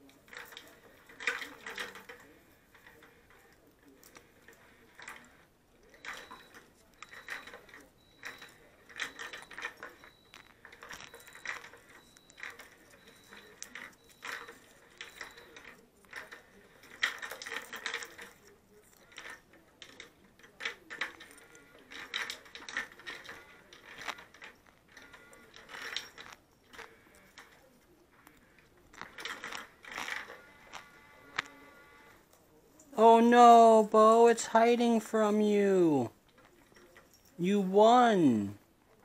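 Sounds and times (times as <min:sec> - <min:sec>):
plastic cat toy clicking and rattling: 0:00.0 - 0:32.2
faint steady high tone: 0:00.1 - 0:19.2, 0:36.8 - 0:38.6.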